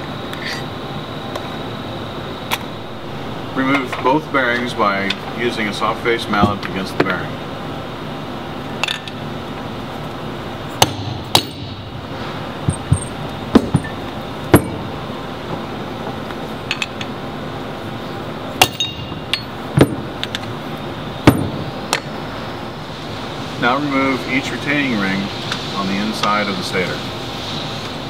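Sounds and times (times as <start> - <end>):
mallet striking metal bearing: 10.8 - 11.9, 12.6 - 14.9, 18.6 - 20.4, 21.3 - 22.1
metallic clink: 18.6 - 19.6.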